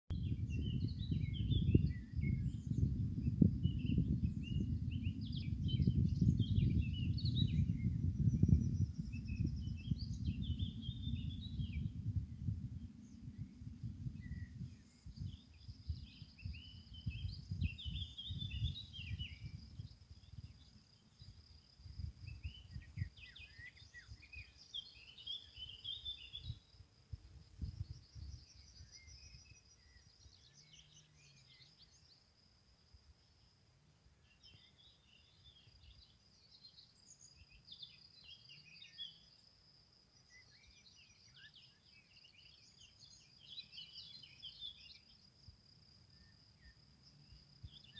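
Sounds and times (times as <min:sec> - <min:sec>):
wind buffeting microphone: 0:00.1 - 0:29.8
songbirds singing: 0:00.1 - 0:47.9
high insect trill: 0:00.2 - 0:47.9.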